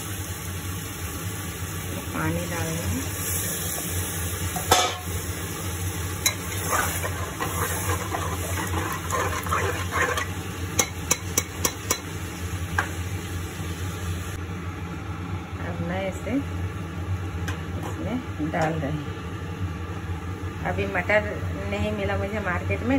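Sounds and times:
metal spatula scraping pot: 6.2s - 12.0s.

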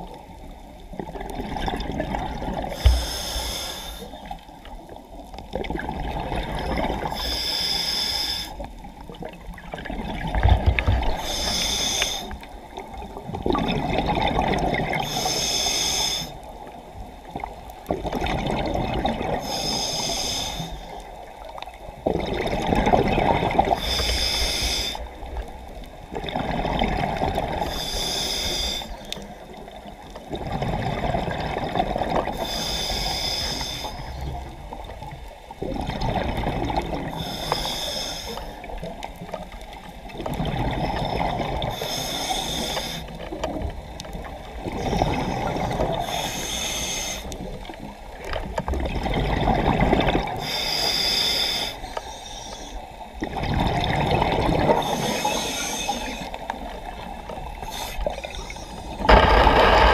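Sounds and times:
exhaled bubbles rushing: 1.0s - 2.8s, 5.5s - 7.1s, 9.1s - 11.2s, 12.8s - 15.0s, 17.9s - 19.4s, 22.0s - 23.8s, 25.6s - 27.7s, 30.3s - 32.3s, 35.7s - 37.1s, 48.8s - 50.4s, 53.2s - 55.1s, 58.2s - 59.9s
diver breathing through regulator: 2.7s - 4.4s, 7.0s - 8.7s, 11.0s - 12.5s, 15.0s - 16.5s, 19.4s - 21.0s, 23.7s - 25.1s, 27.6s - 29.2s, 32.3s - 34.2s, 37.1s - 38.7s, 41.6s - 43.3s, 44.8s - 47.5s, 50.4s - 52.9s, 54.7s - 56.5s, 57.5s - 59.9s.

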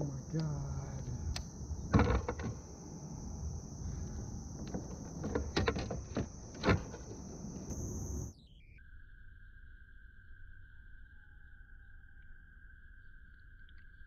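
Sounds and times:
insects chirring: 0.0s - 14.0s
fish knocking and thumping: 1.9s - 2.6s.

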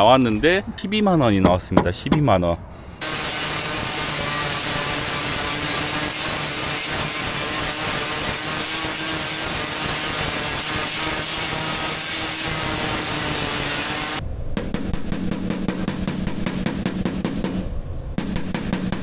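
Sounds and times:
angle grinder grinding metal: 3.0s - 14.2s.

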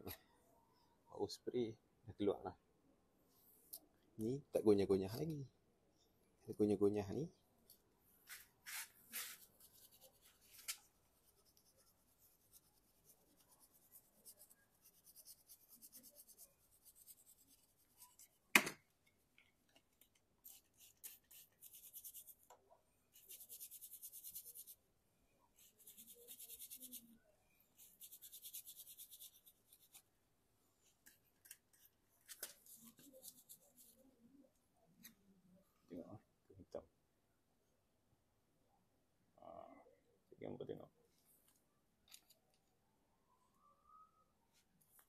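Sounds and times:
scratchy hand scrubbing: 8.3s - 18.2s.

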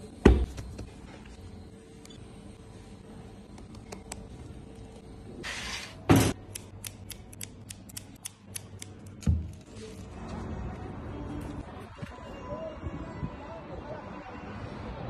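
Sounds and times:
scissors snipping herbs: 6.4s - 9.2s.

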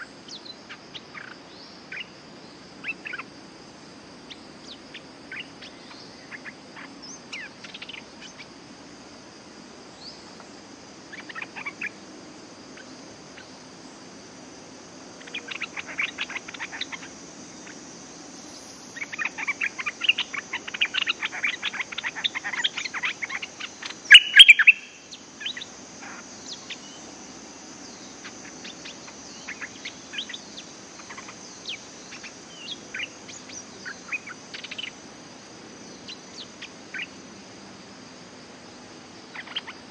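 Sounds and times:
high insect drone: 0.0s - 39.9s
bulbuls calling: 19.0s - 27.0s.

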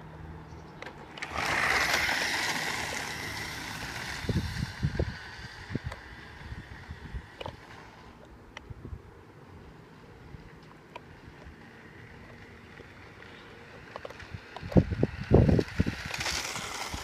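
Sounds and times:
toy car motor whining: 1.1s - 8.3s, 11.4s - 17.0s.

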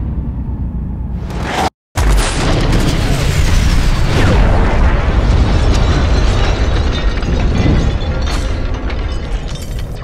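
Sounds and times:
deep rumbling explosion boom: 2.0s - 9.4s.

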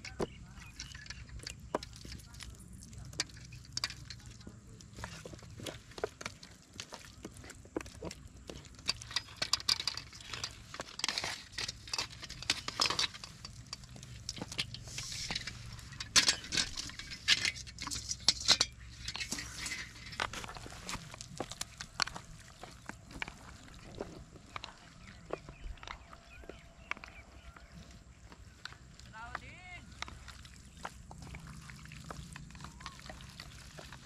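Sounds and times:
metal utensils clinking on pots: 0.0s - 6.5s, 7.1s - 27.6s.

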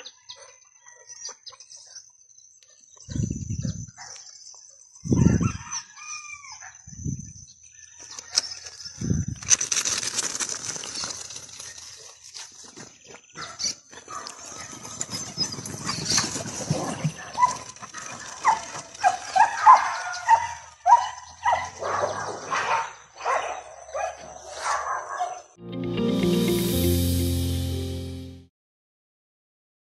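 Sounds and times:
dogs barking and yelping: 13.4s - 25.5s.

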